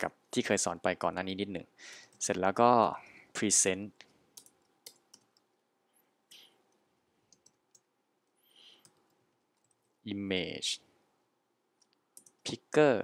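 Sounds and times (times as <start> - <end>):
computer keyboard keystrokes: 4.4 - 5.5, 7.3 - 7.9, 12.2 - 12.4.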